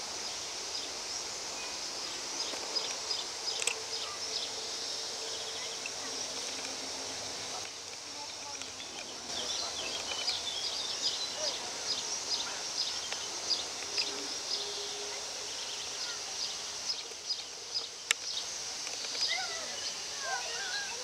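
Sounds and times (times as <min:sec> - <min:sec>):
sharp click: 0:17.8 - 0:19.3.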